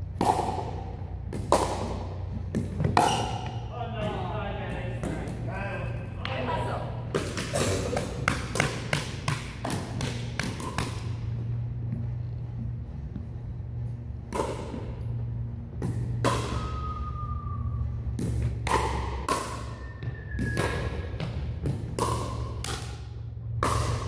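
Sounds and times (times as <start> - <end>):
steady low hum: 0.0 - 24.0
shoes squeaking on floor: 19.7 - 21.2.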